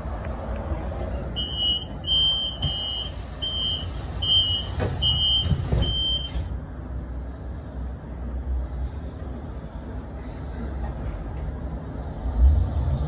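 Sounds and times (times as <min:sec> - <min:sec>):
bus rumbling: 0:00.0 - 0:13.0
short high warning beeps: 0:01.4 - 0:06.4.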